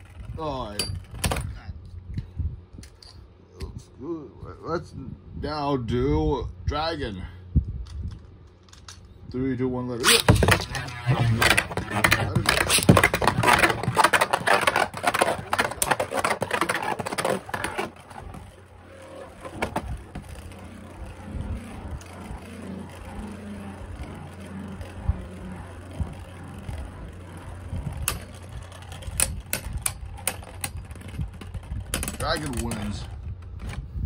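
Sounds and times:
spinning tops whirring: 0:10.0 - 0:33.2.

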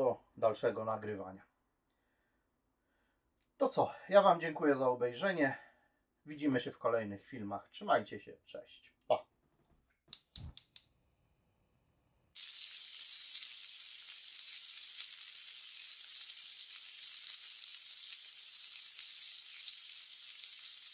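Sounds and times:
quick sharp clicks: 0:10.1 - 0:10.9
vegetables sizzling in a wok: 0:12.4 - 0:20.9.

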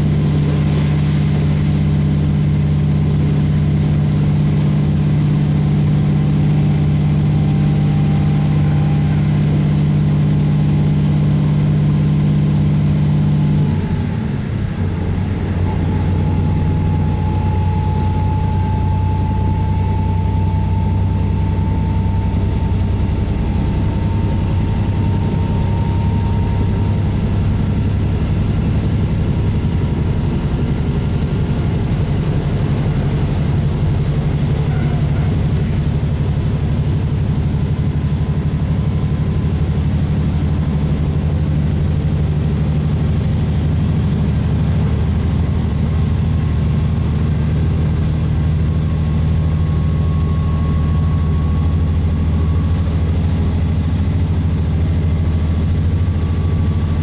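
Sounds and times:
diesel railcar engine droning: 0:00.0 - 0:57.0.

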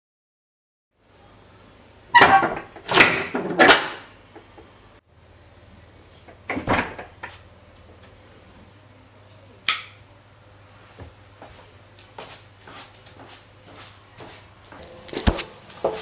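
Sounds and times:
light footsteps: 0:10.9 - 0:16.0.

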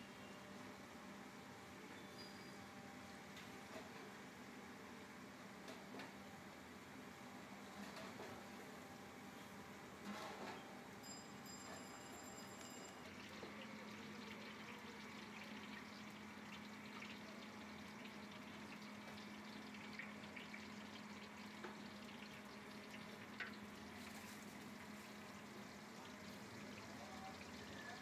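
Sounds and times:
hot oil sizzling: 0:12.6 - 0:28.0.

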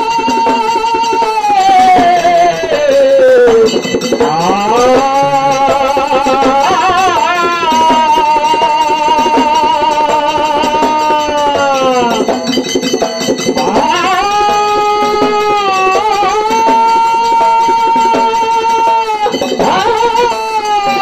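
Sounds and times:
barrel drum beat: 0:00.0 - 0:21.0
small hand cymbals: 0:00.0 - 0:21.0
man singing folk song: 0:00.3 - 0:10.7.

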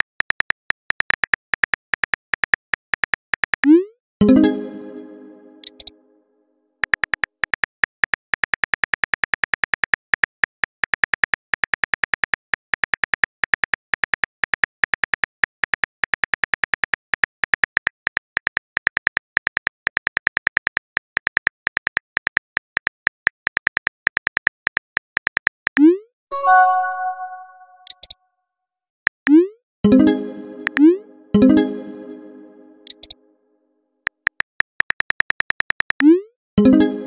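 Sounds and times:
phone keyboard typing clicks: 0:05.6 - 0:05.9, 0:32.8 - 0:33.2.

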